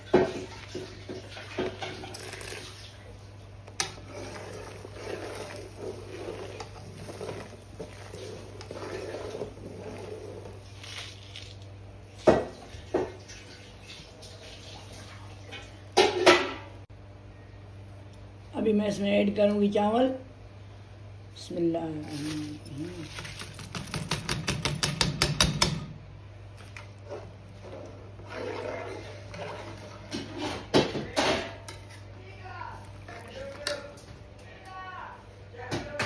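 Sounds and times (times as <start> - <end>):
ladle sloshing water in pot: 0.0 - 16.4, 22.0 - 24.2, 26.6 - 32.1, 32.7 - 34.1.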